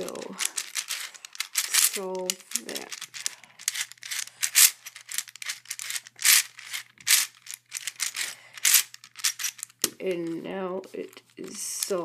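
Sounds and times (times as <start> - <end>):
puzzle cube plastic clicks: 0.0 - 10.1, 11.1 - 12.0.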